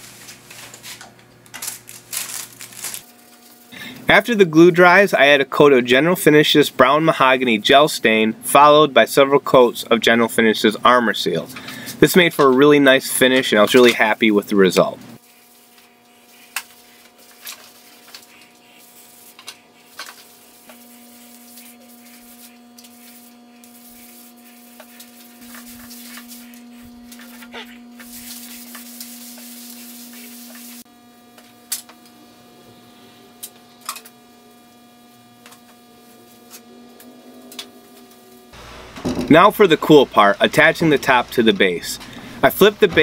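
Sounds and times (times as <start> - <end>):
steady hum: 0.0 - 43.0
rag wiping wood: 15.2 - 30.8.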